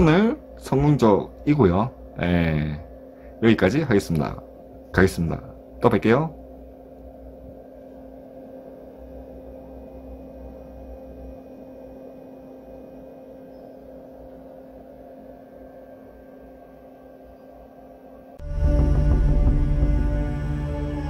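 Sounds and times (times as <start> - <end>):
fan heater blower humming: 0.0 - 21.0
loud music: 18.4 - 21.0.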